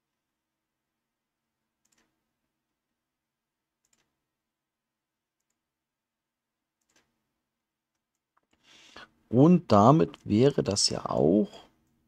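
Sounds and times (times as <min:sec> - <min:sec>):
faint computer mouse clicks: 0:03.8 - 0:04.1.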